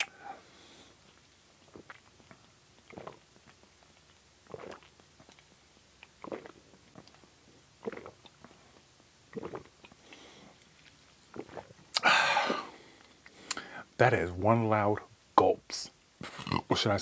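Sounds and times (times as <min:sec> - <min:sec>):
swallowing gulps: 0:01.0 - 0:13.7
breathy rush: 0:12.0 - 0:12.8.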